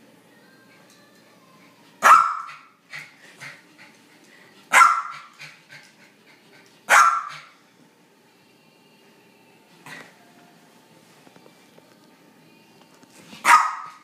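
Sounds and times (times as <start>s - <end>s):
small dog barking sharply: 13.4s - 13.9s.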